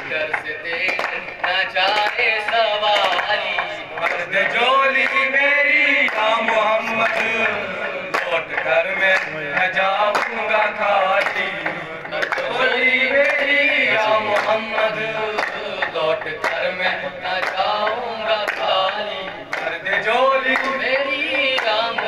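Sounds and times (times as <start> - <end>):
group hand clapping: 0.0 - 22.0
young men singing: 0.0 - 22.0.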